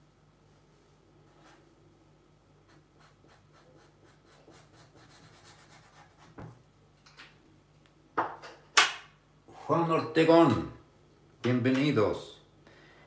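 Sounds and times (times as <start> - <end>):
marker scratching on paper: 2.7 - 6.4.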